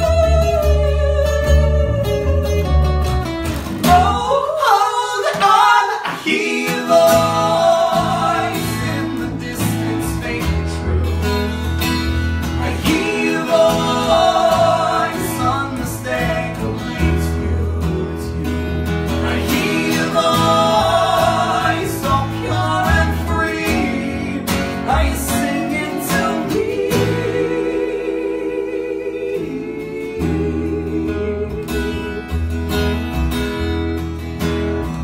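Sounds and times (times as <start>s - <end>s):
woman singing lead: 0.0s - 3.0s, 3.8s - 9.6s, 19.2s - 32.6s
plucked upright bass: 0.0s - 4.4s, 6.9s - 35.0s
strummed acoustic guitar: 0.0s - 35.0s
men singing: 3.8s - 11.3s, 12.4s - 32.5s.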